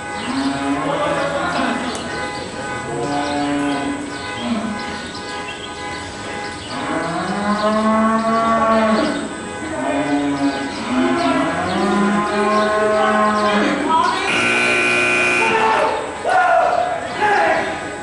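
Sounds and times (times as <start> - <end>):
cattle mooing: 6.7 - 9.2, 9.8 - 15.9.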